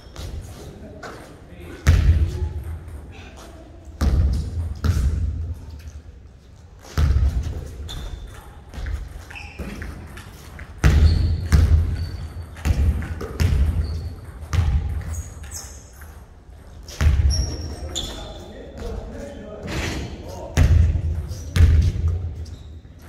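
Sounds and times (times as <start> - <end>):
shoe squeaks: 0.0 - 0.8, 7.6 - 12.6, 13.5 - 14.4, 15.0 - 18.8, 21.3 - 23.0
basketball bouncing on hardwood floor: 10.8 - 15.2, 17.0 - 17.6.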